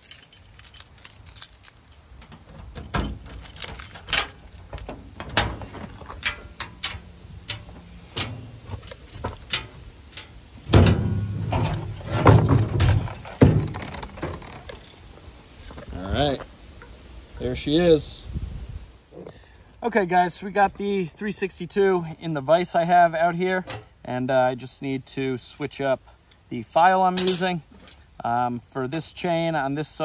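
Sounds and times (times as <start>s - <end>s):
metal hardware clicking and jangling: 0.0s - 10.4s, 11.7s - 15.1s, 27.1s - 28.1s
heavy clunks and thumps: 10.6s - 14.7s.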